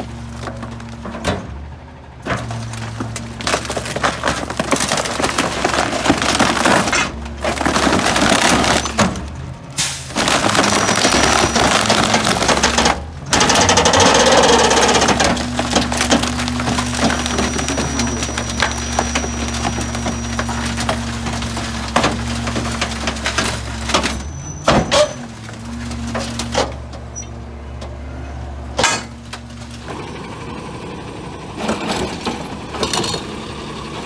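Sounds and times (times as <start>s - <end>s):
truck engine humming: 0.0s - 34.0s
wooden frame cracking and splintering: 2.3s - 26.7s.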